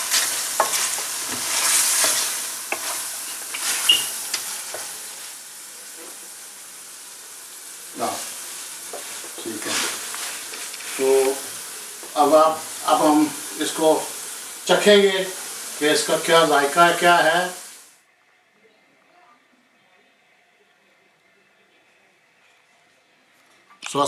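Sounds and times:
spatula scraping pan: 0.0 - 5.1
meat sizzling in metal pan: 0.0 - 18.0.

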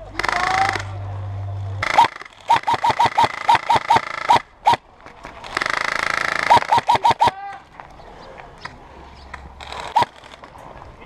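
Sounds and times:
airsoft rifle shots: 1.8 - 4.8, 5.4 - 7.5.

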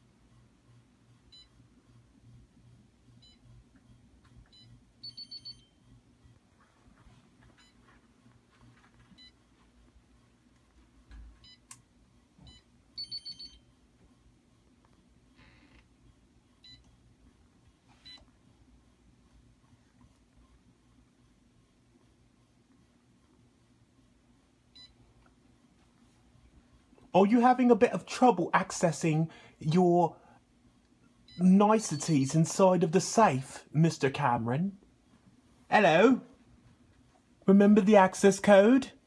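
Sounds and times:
keypad beeps: 4.5 - 5.7, 12.4 - 13.6.

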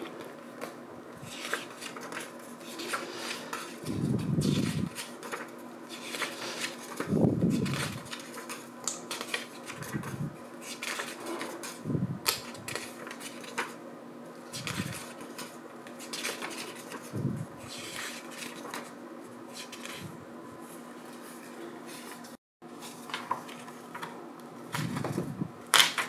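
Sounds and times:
paper pages rustling: 0.0 - 13.8, 14.4 - 26.0
page flapping over: 1.2 - 13.8, 24.7 - 26.0.

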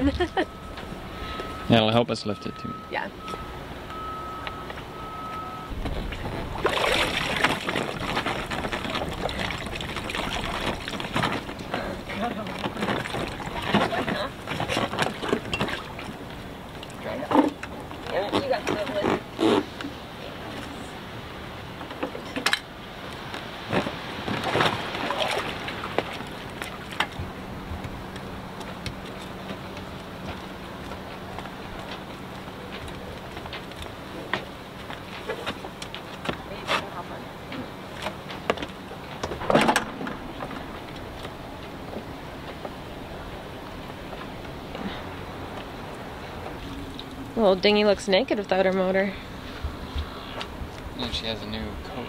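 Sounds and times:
water streaming and dripping: 0.0 - 52.0
wind: 0.0 - 52.0
thin beep: 0.2 - 5.8.

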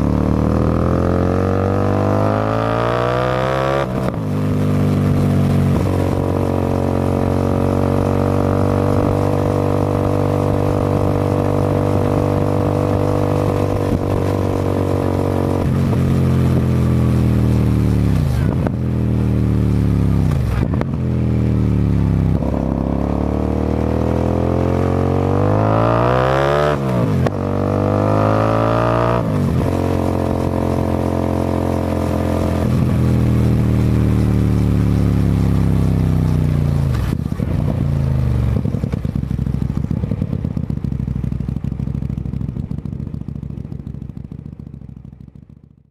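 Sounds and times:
motorcycle engine revving: 0.0 - 45.9
exhaust pops and crackles: 3.9 - 19.1, 29.2 - 45.4.

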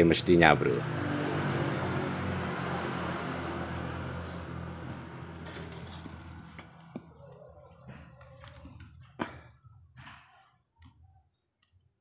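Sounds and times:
motorcycle engine humming: 0.0 - 9.5.

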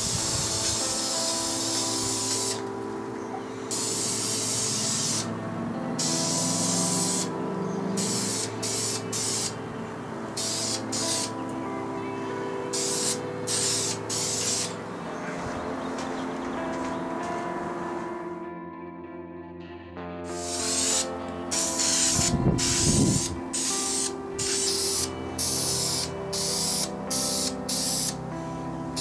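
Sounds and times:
aerosol spray can hissing: 0.0 - 2.7, 3.7 - 5.3, 6.0 - 7.3, 8.0 - 9.6, 10.4 - 11.3, 12.8 - 14.8, 20.3 - 28.2
background music: 0.0 - 29.0.

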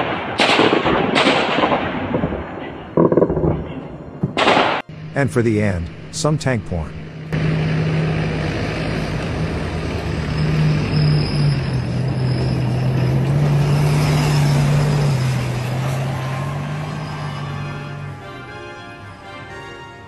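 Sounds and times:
rumble of tank tracks: 0.0 - 19.4
tank engine running hard: 4.9 - 19.2.

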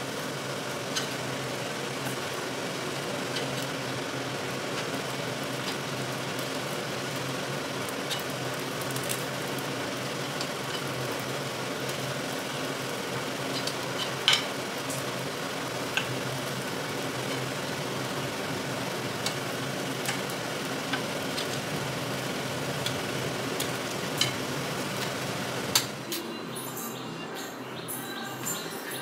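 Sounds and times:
dumplings sizzling in oil: 0.0 - 26.0.

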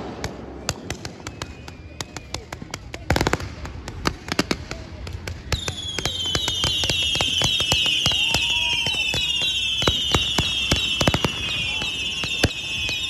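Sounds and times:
firework whistle: 0.0 - 2.6, 5.5 - 13.0
fireworks crackle: 0.0 - 13.0
fireworks pops and cracks: 0.0 - 13.0.

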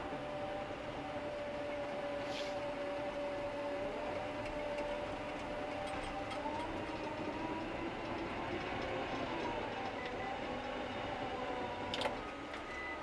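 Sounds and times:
dozer mechanical hum and whine: 0.0 - 13.0
brief hiss: 2.2 - 2.6.

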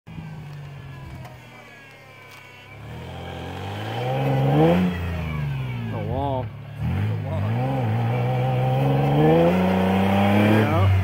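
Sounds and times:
truck engine revving: 2.7 - 11.0.

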